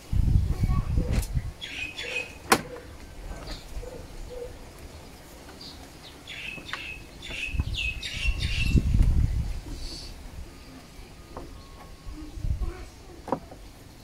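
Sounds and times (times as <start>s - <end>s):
birds chirping: 0.3s - 14.0s
knocking and rustling of plastic: 13.2s - 13.7s.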